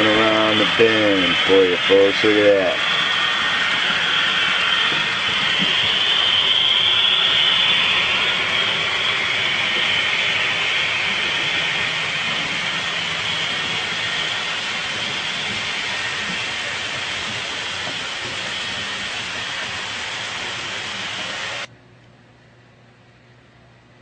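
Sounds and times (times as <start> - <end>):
model train rolling hiss: 0.0 - 21.7
high whine: 0.0 - 21.8.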